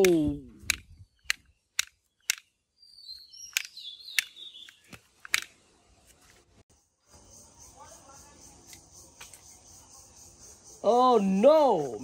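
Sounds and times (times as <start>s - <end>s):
short sharp clicks: 0.0s - 2.5s
faint bird chirps: 0.9s - 5.0s.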